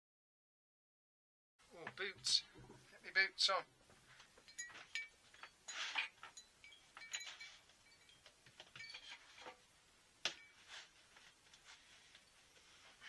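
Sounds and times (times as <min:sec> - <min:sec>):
small objects clinking and knocking: 0:04.1 - 0:09.6.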